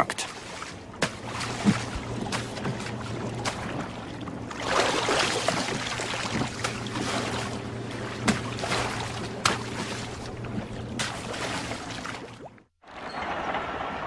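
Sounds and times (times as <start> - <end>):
water splashing around boat: 0.0 - 14.0
steady low hum: 0.1 - 12.6.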